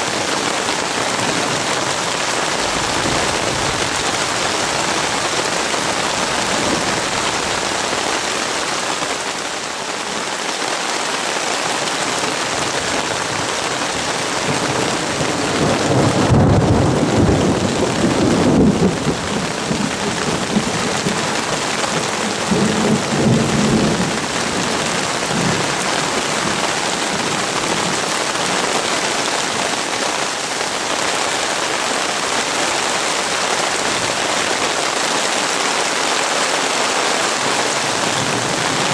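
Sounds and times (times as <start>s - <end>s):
heavy rain hissing: 0.0s - 38.9s
thunder rumbling: 14.5s - 28.0s.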